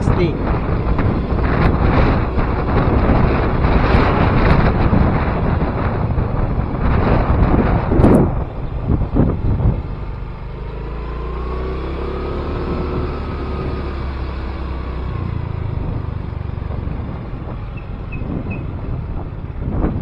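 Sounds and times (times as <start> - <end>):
vehicle engine passing: 0.0 - 20.0
wind rumbling on microphone: 0.0 - 20.0.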